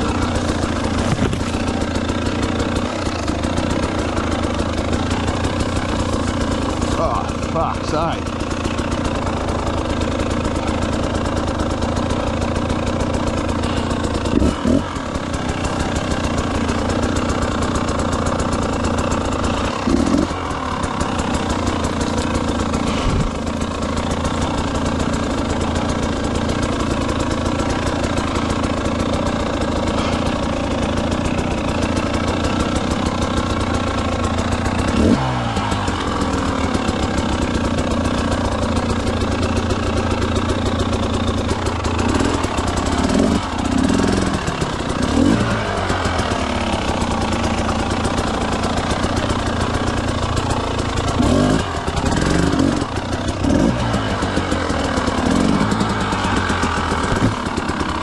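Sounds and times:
engine knocks: 0.0 - 58.0
motorcycle engine running: 0.0 - 58.0.

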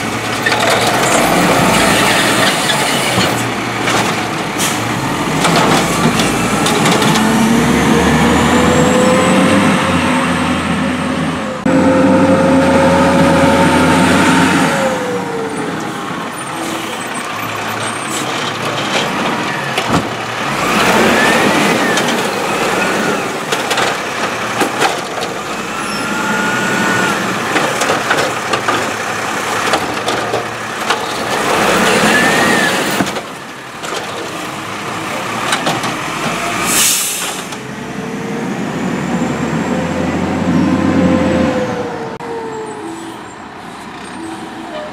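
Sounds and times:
diesel engine running: 0.0 - 42.4
air brake hiss: 36.7 - 37.5.

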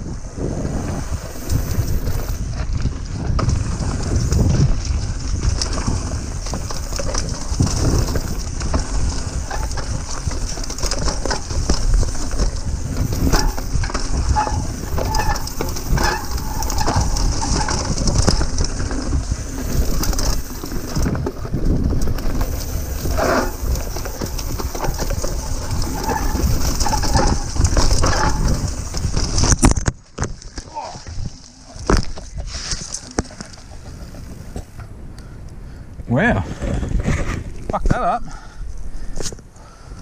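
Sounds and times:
bike rattling on trail: 0.0 - 37.7
wind: 0.0 - 40.0
squeaky bike brakes: 5.9 - 21.3, 22.0 - 29.5.

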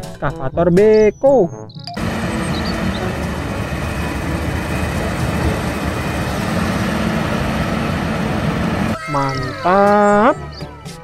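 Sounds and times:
diesel truck engine running: 2.0 - 9.0.

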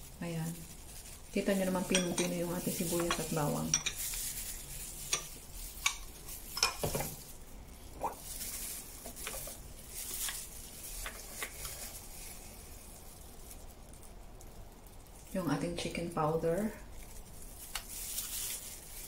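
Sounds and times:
utensils clicking and tapping: 1.6 - 4.3, 5.0 - 7.2.

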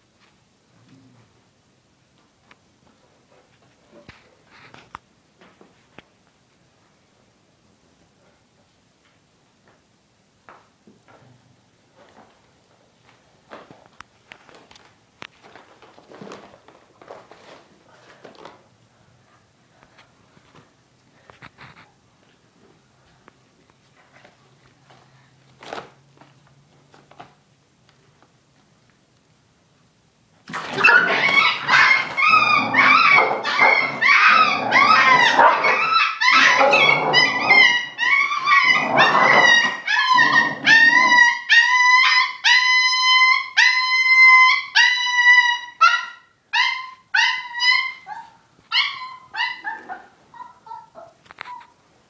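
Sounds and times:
puppy yelping in distress: 30.6 - 51.7.

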